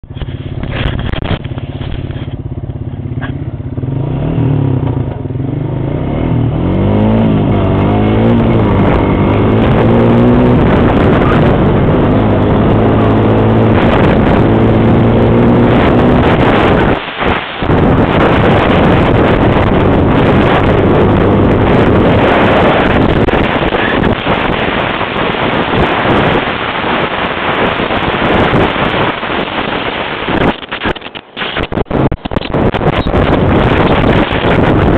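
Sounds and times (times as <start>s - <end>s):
wind on microphone: 0.0s - 2.4s, 6.3s - 34.9s
atv engine accelerating: 0.1s - 34.9s.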